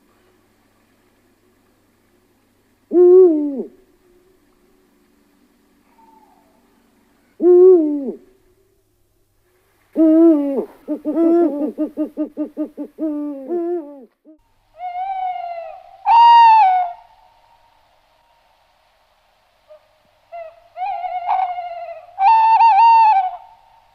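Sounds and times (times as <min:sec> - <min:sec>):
owl hooting: 0:02.9 - 0:03.9, 0:05.8 - 0:08.4, 0:10.0 - 0:17.4, 0:19.7 - 0:23.9.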